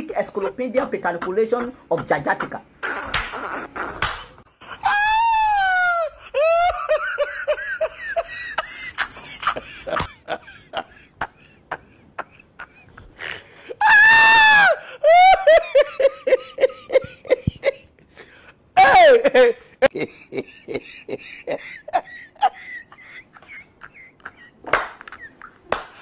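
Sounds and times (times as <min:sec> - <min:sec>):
high-pitched wailing cries: 0:04.6 - 0:07.0, 0:13.8 - 0:15.8, 0:18.8 - 0:19.5.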